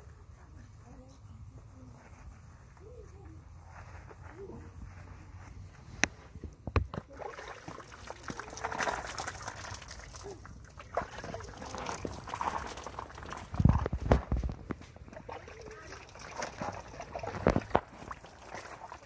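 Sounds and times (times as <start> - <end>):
water splashing and trickling: 6.9 - 19.0.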